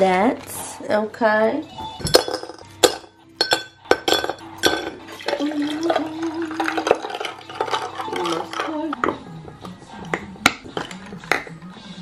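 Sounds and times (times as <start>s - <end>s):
ice cubes clinking in glass: 2.1s - 8.8s
water pouring over ice: 5.1s - 8.4s.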